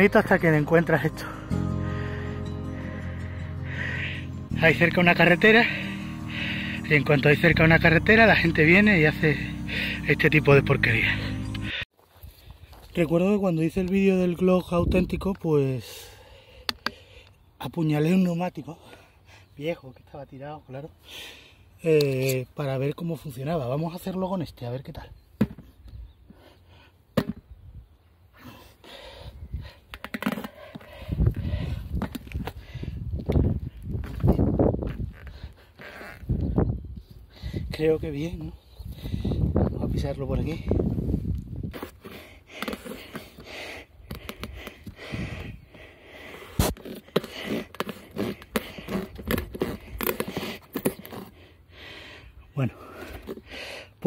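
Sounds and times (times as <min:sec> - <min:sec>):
heavy panting breaths: 0:01.2 - 0:04.5, 0:30.5 - 0:33.0, 0:42.0 - 0:50.6, 0:51.2 - 0:54.0
knife blade scraping rubber: 0:46.6 - 0:51.4.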